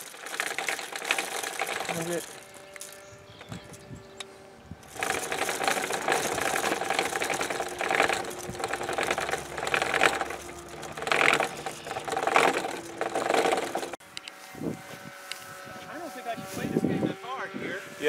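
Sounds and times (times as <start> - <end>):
hand winder gears clattering: 0.0 - 14.0.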